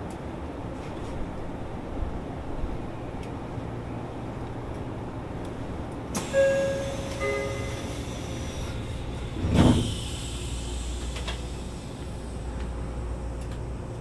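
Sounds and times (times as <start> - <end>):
two-note door chime: 6.3 - 7.9
sliding doors thudding: 8.6 - 10.1.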